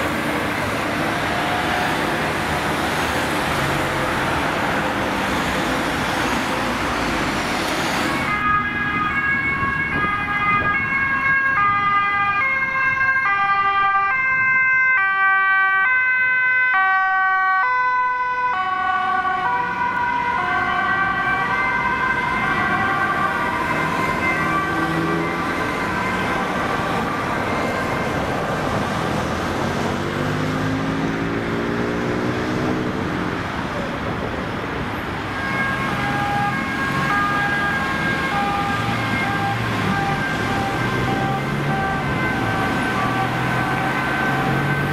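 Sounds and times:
loud road traffic: 0:00.0 - 0:44.9
two-tone police siren: 0:08.0 - 0:29.7, 0:34.9 - 0:44.9.

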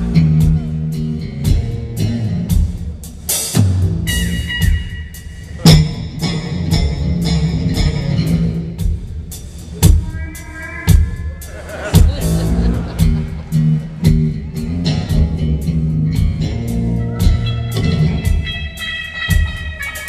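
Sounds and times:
electric bass: 0:00.0 - 0:04.8, 0:05.5 - 0:08.9, 0:12.0 - 0:20.0
drum kit: 0:00.0 - 0:20.0
electric guitar: 0:12.2 - 0:20.0.

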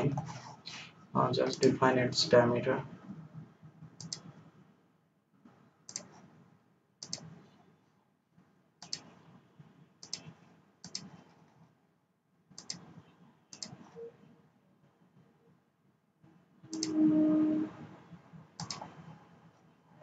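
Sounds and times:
computer mouse buttons clicking: 0:04.0 - 0:04.3, 0:05.9 - 0:06.1, 0:07.0 - 0:07.3, 0:08.8 - 0:09.1, 0:10.0 - 0:11.1, 0:12.6 - 0:12.8, 0:13.5 - 0:13.8, 0:18.6 - 0:18.9.

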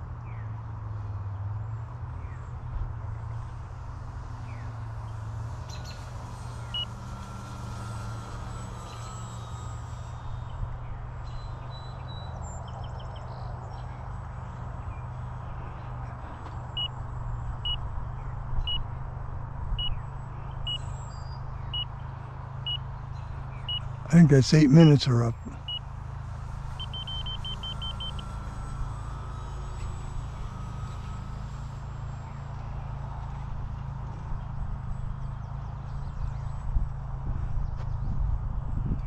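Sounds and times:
transmitter timer beeps: 0:23.7 - 0:25.8, 0:26.8 - 0:28.4
wind rumbling on microphone: 0:36.3 - 0:39.0.

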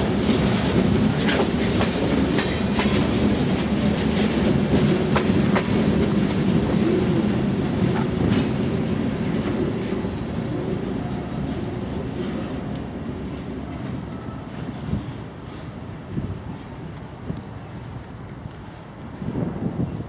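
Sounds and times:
train wheels rumbling over rail joints: 0:00.0 - 0:20.0.

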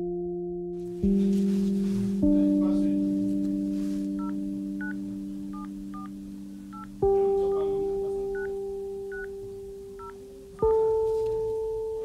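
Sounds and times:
background music of ringing notes: 0:00.3 - 0:12.0.

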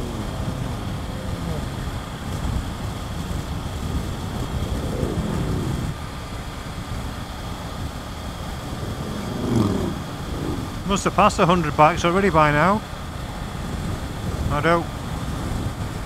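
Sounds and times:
motorcycle engine running: 0:00.0 - 0:11.7
road noise: 0:00.0 - 0:16.0
wind rush: 0:00.0 - 0:16.0.

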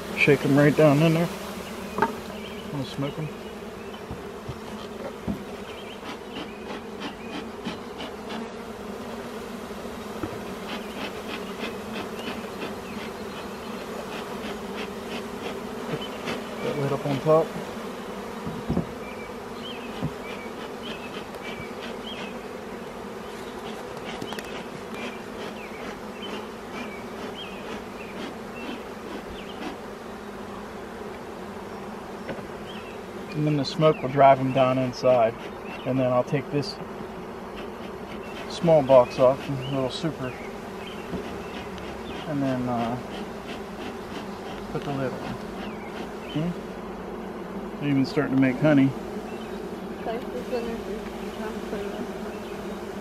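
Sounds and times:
bees buzzing: 0:00.0 - 0:53.0
wooden lid knock: 0:02.0 - 0:02.2.

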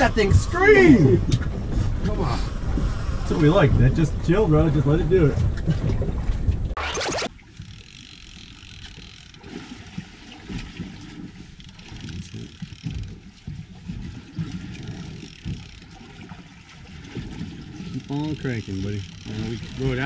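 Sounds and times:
wind buffeting microphone: 0:00.0 - 0:06.8.

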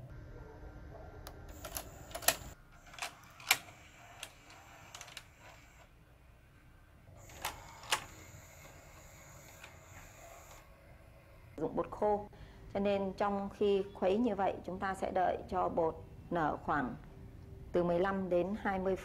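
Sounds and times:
tape mechanism clicks and clunks: 0:01.5 - 0:05.7, 0:07.2 - 0:10.6
faint motor whir: 0:01.5 - 0:11.6.

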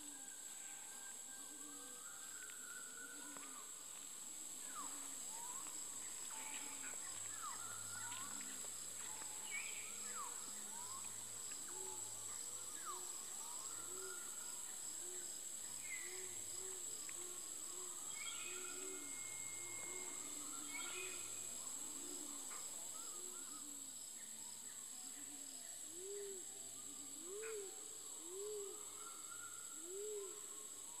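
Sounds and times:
high-pitched insect drone: 0:04.4 - 0:24.1.

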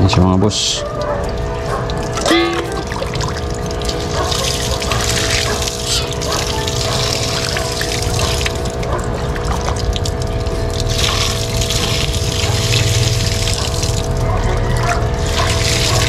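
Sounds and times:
water splashing on wet ground: 0:01.9 - 0:16.0
hose water spraying onto net: 0:10.7 - 0:14.0, 0:15.2 - 0:16.0.

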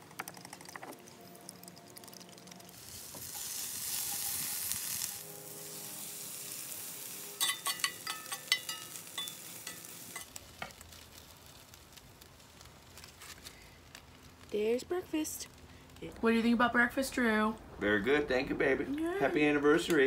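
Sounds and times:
food sizzling in a skillet: 0:01.2 - 0:17.5
metal utensil scraping a pan: 0:06.5 - 0:10.4.

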